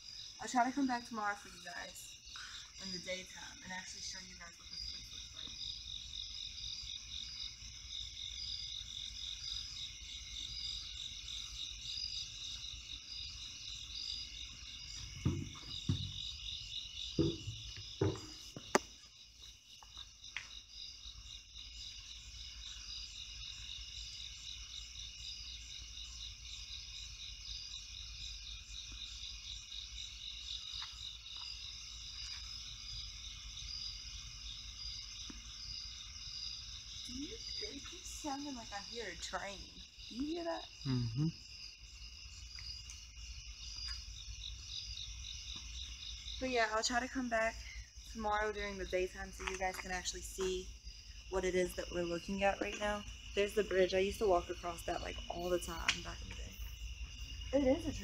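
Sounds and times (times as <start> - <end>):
night insects chirping: 0.0 - 58.0
dull knocks: 15.1 - 16.4, 17.1 - 18.9.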